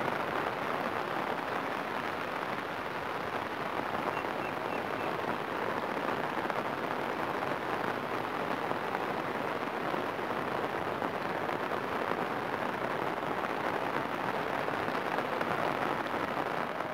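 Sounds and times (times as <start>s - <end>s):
rain falling on water: 0.0s - 16.9s.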